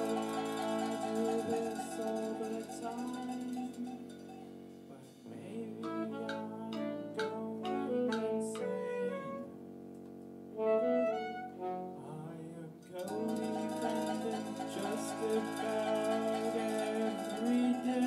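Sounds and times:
live band playing: 0.0 - 3.6, 5.8 - 9.2, 13.0 - 18.0
saxophones: 0.0 - 9.8, 10.5 - 18.0
electric guitar: 0.0 - 12.2, 12.8 - 18.0
keyboard: 0.0 - 18.0.

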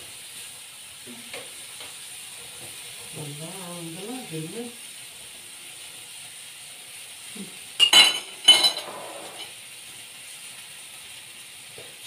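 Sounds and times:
faint steady hiss: 0.0 - 12.0
metallic clinks of cookware: 7.8 - 9.5.

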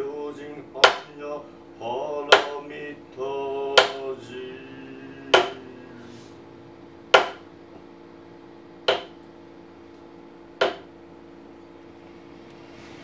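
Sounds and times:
faint steady hum: 0.0 - 13.0
mallet striking chisel: 0.8 - 1.1, 2.3 - 2.6, 3.8 - 4.0, 5.3 - 5.6, 7.1 - 7.5, 8.9 - 9.2, 10.6 - 10.9.

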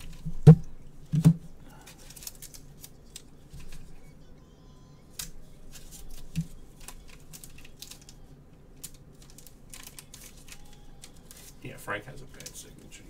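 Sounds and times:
plastic sleeve clicks and crinkles: 1.2 - 4.0, 5.1 - 8.2, 8.8 - 11.6, 12.2 - 12.7.

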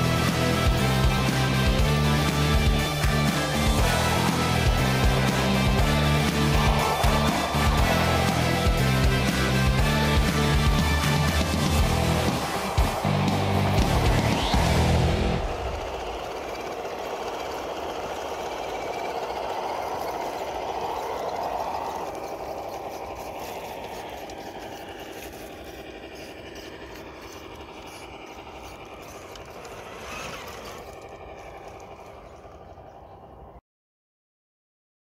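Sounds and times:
toy car motor whirring and rattling: 0.0 - 32.9.

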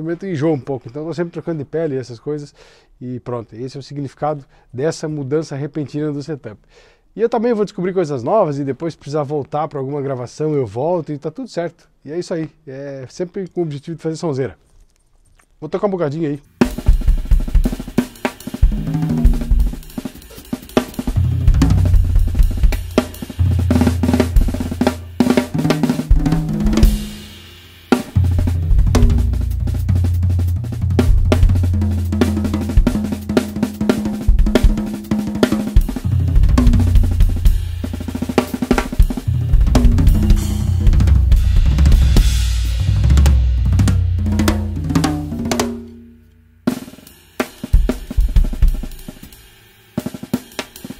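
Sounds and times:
cymbals: 16.6 - 50.9
bass drum: 18.6 - 20.1, 20.9 - 46.1
high-tuned toms ringing: 21.1 - 42.4.

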